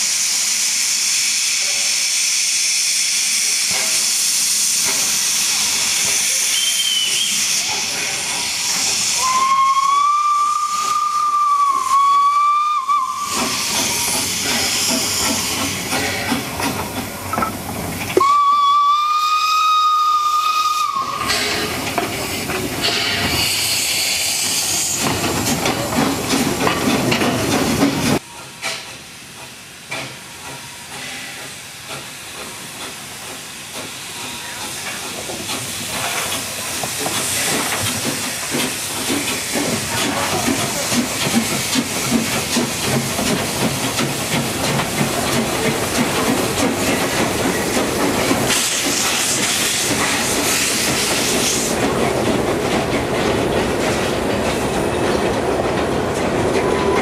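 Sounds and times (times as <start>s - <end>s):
steam hissing: 0.0s - 57.0s
steam locomotives running past: 0.0s - 57.0s
steam whistle blasts: 6.4s - 7.7s, 8.7s - 14.1s, 18.2s - 21.6s.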